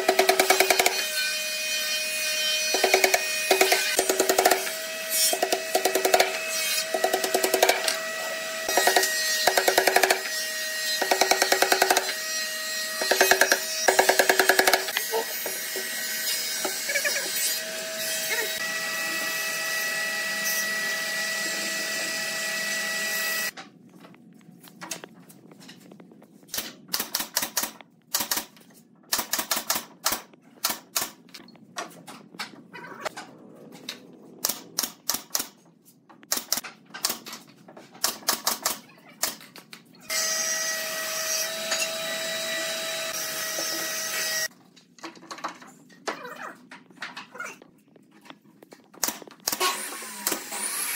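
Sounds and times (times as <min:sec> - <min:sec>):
pneumatic nail gun firing: 0:49.0 - 0:50.9.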